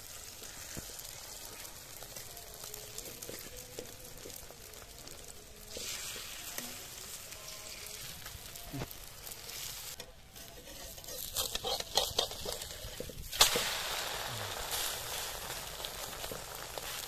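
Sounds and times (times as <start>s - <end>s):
omelette sizzling: 0.0s - 17.0s
metal spatula scraping a pan: 9.2s - 13.3s.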